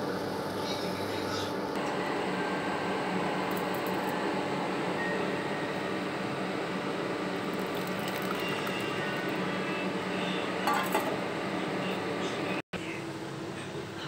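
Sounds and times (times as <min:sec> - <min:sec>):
steady background hum: 0:00.0 - 0:14.0
tea pouring into cup: 0:07.4 - 0:09.4.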